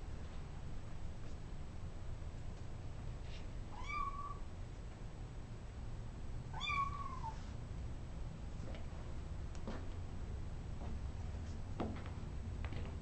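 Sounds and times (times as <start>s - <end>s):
cat meowing: 3.7s - 4.4s, 6.5s - 7.4s.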